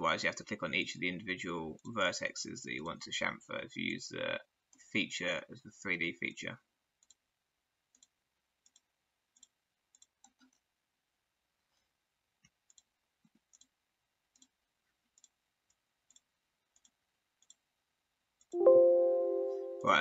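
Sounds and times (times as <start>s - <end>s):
computer mouse clicks: 7.0s - 7.2s, 7.9s - 10.7s, 12.4s - 17.6s.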